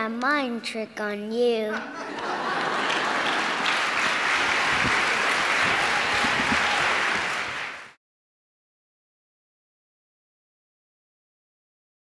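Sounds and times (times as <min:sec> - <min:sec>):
audience applauding: 0:02.0 - 0:08.0.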